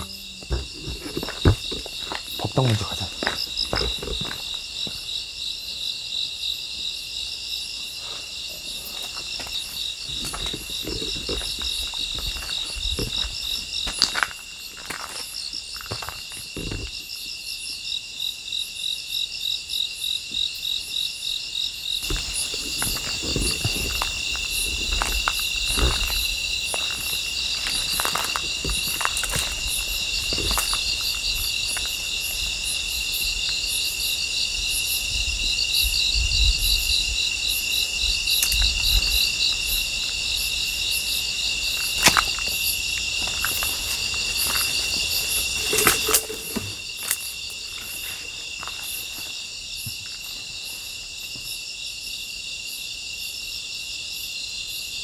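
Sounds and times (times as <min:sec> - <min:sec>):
footsteps: 0:00.0 - 0:05.1, 0:08.0 - 0:17.0, 0:22.0 - 0:32.6, 0:41.7 - 0:50.5
crickets chirping: 0:00.0 - 0:55.0
weeds rustling: 0:41.8 - 0:49.3.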